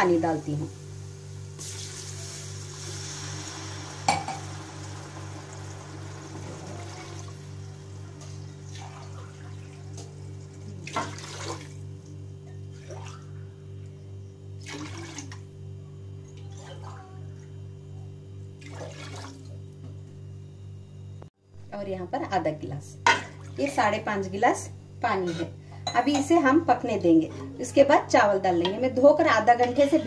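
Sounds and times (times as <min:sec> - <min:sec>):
water poured into a pot: 0:01.6 - 0:07.5, 0:08.6 - 0:11.8, 0:14.6 - 0:15.4, 0:18.6 - 0:19.6
glass clinking: 0:04.1 - 0:04.4
water splashing: 0:10.8 - 0:11.9.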